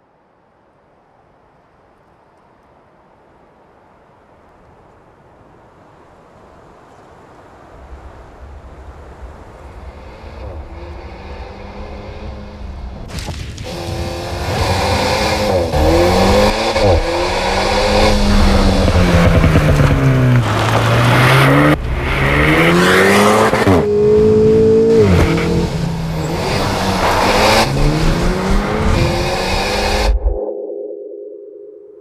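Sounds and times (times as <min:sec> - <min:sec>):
car engine revving hard: 0:13.7 - 0:30.2.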